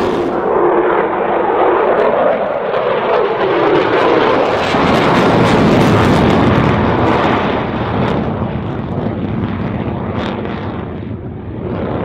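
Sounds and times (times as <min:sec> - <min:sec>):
deep rumble: 0:00.0 - 0:02.1, 0:04.7 - 0:12.0
jet engine noise: 0:00.0 - 0:12.0.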